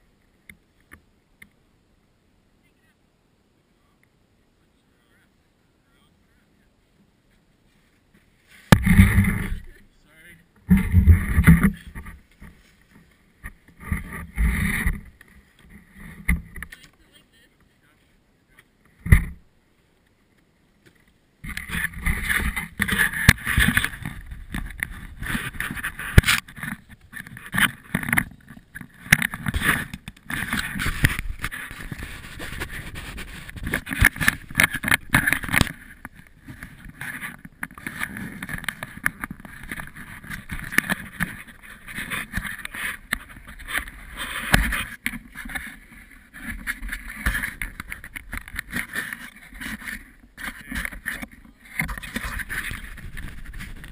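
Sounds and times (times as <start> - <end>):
clothing rustling against camera: 7.7 - 9.8, 21.0 - 53.9.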